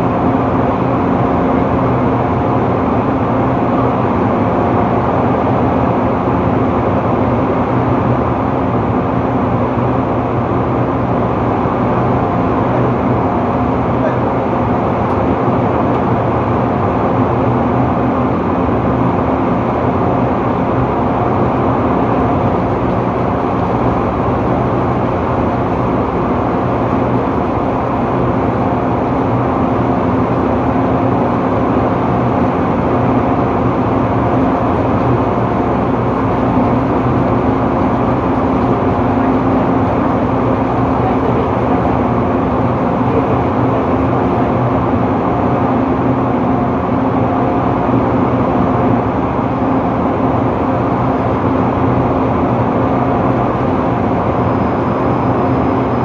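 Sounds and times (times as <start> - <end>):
steady humming tones: 0.0 - 56.0
machinery droning: 18.3 - 46.0.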